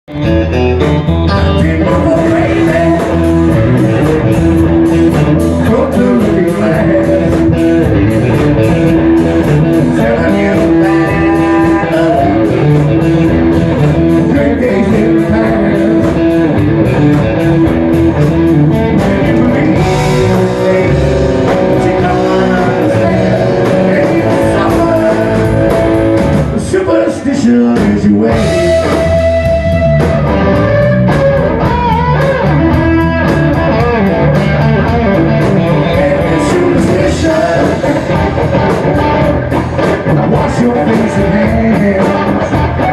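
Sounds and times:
electric guitars: 0.0s - 42.9s
drum kit: 0.1s - 42.9s
man singing into microphone: 1.4s - 3.7s, 5.6s - 7.8s, 9.8s - 12.8s, 14.0s - 16.2s, 19.0s - 25.7s, 26.6s - 29.0s, 35.6s - 38.2s, 40.0s - 42.9s.

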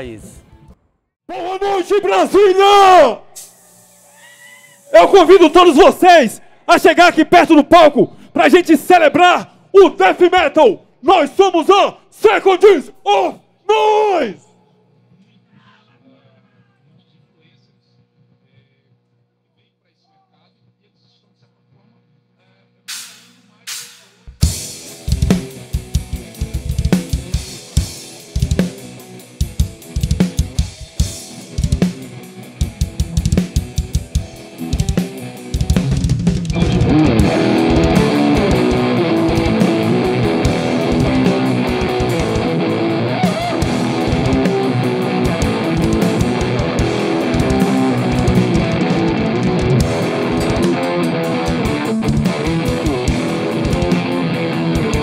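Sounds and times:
death metal band playing: 5.0s - 6.9s, 24.4s - 55.0s
drum kit playing: 22.9s - 55.0s
electric guitar: 24.4s - 55.0s.

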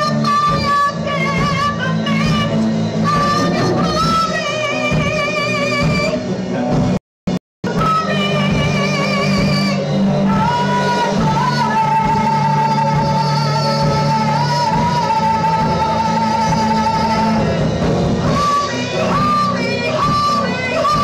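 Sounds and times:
woman singing: 0.0s - 6.2s, 7.7s - 17.6s, 18.3s - 21.0s
electric guitar chords: 0.0s - 7.0s, 7.6s - 21.0s
keyboard chords: 1.9s - 4.9s.

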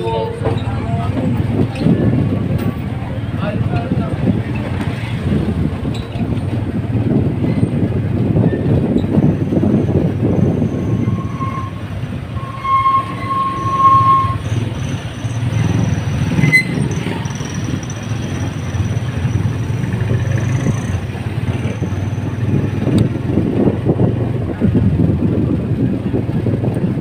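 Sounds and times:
motor tricycle engine rumble: 0.0s - 27.0s
horn beeps: 10.6s - 14.6s.

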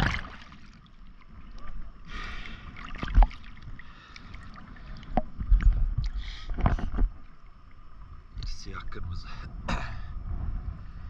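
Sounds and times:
water lapping and splashing: 0.0s - 8.3s.

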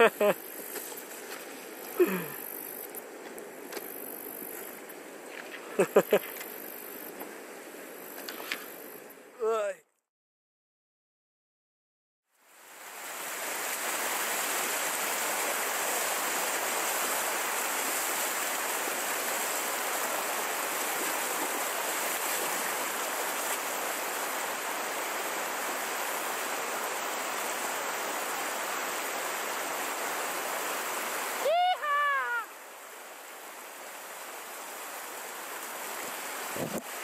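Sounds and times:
river rushing over rocks: 12.5s - 37.0s.

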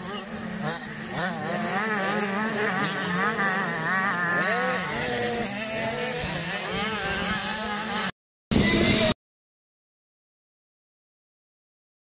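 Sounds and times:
motocross bike engines racing: 0.0s - 9.2s.

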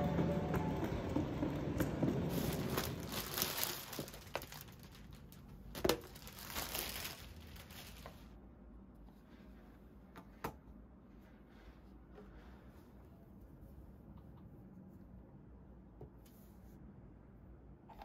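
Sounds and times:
plastic bag crinkling: 2.3s - 8.3s.

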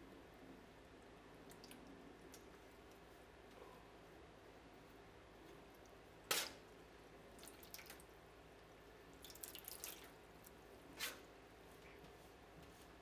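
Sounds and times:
water dripping into metal pan: 9.2s - 10.1s.

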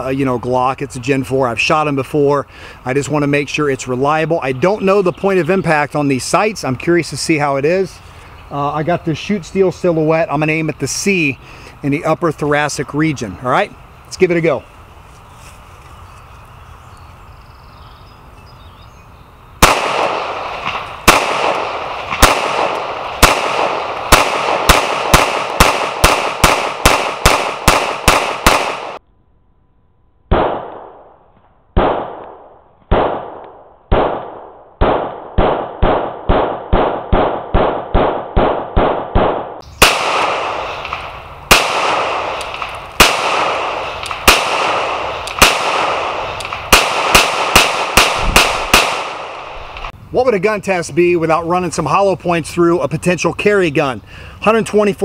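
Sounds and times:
pistol shots: 19.6s - 29.0s, 30.3s - 31.2s, 31.8s - 49.9s.

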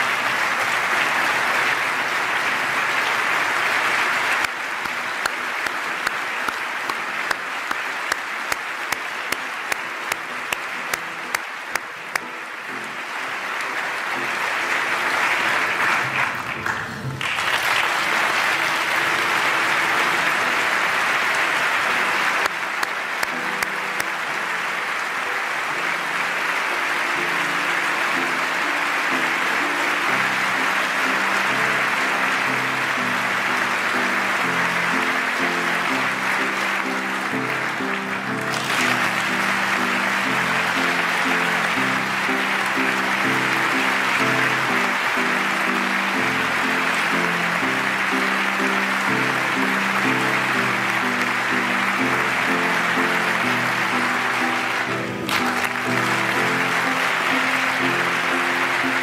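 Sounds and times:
audience applauding: 0.0s - 59.0s
soft instrumental music: 0.0s - 59.0s
sharp claps: 3.9s - 13.3s, 21.1s - 24.2s, 35.0s - 45.8s, 54.4s - 59.0s.

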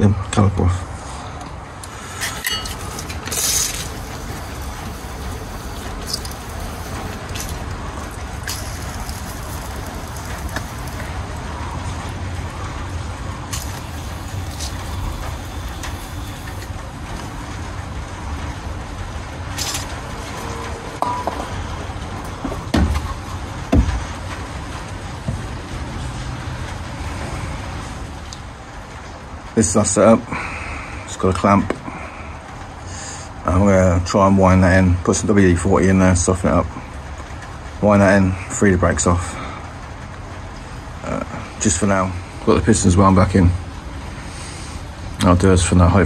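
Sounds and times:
steady low rumble: 0.3s - 34.1s
heavy knocks: 21.0s - 24.5s.

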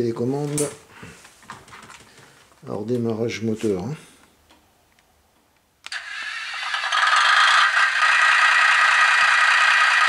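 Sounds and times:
tinny model locomotive engine sound: 5.9s - 10.0s.

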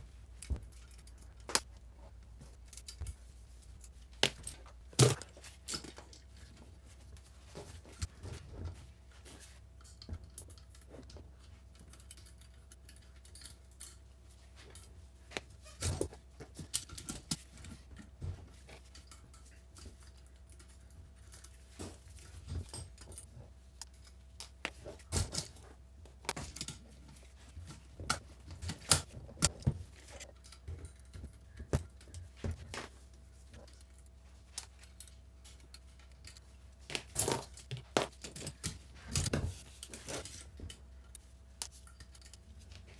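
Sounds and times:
metallic clicks and clinks: 0.3s - 1.7s, 9.8s - 14.9s, 33.5s - 42.8s.

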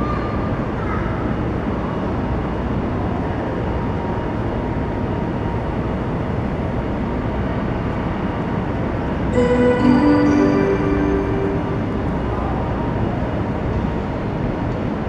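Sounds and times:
electric locomotive humming: 9.3s - 14.4s.

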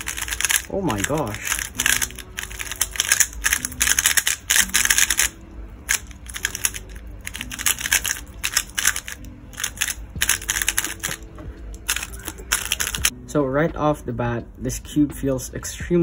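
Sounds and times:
puzzle cube turning clicks: 0.0s - 11.2s, 11.8s - 13.1s.

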